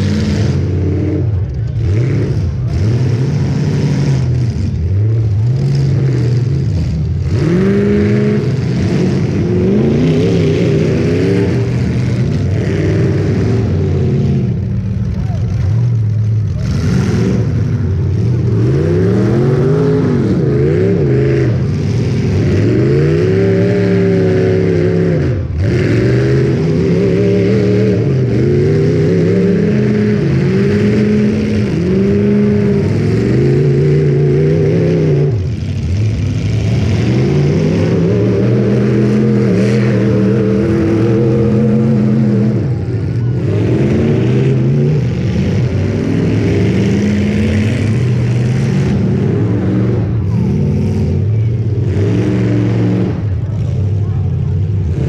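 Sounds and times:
car engines revving: 0:00.0 - 0:55.0.

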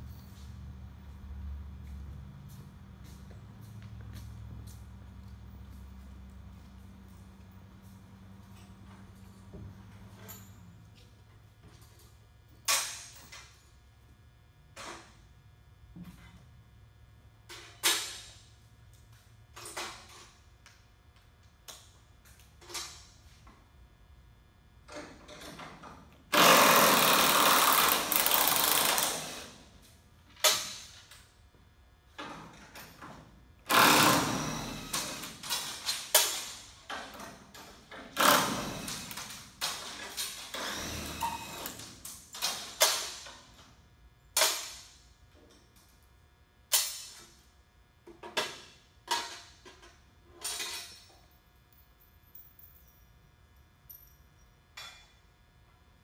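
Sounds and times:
power drill running: 0:26.3 - 0:29.6, 0:33.7 - 0:35.5, 0:38.2 - 0:39.4, 0:40.5 - 0:41.8
metal parts clanking: 0:49.1 - 0:51.3.

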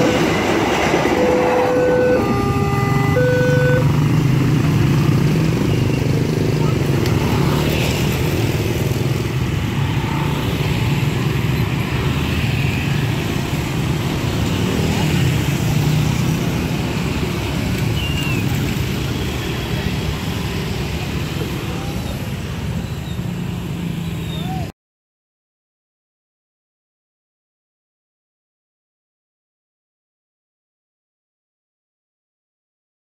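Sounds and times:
motorcycle traffic passing: 0:00.0 - 0:24.7.

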